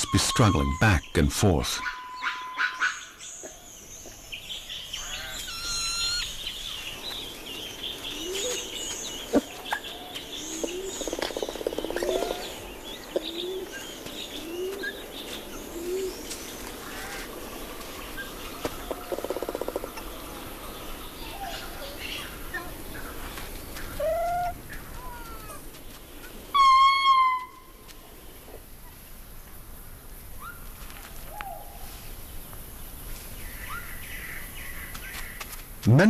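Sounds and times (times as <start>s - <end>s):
lemurs calling: 0.0s - 3.1s, 5.0s - 6.5s
high bird chirps: 5.0s - 6.5s.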